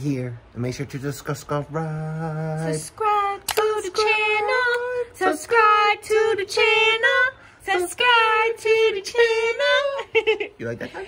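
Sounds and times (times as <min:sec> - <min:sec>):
high voice singing: 0:01.5 - 0:10.2.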